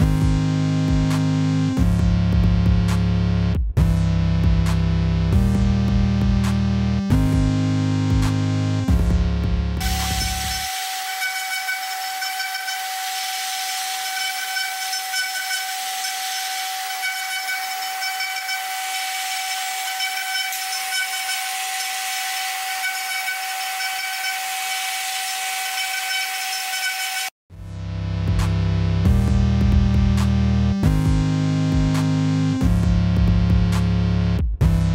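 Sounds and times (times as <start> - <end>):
router spindle whining: 9.8 - 27.3.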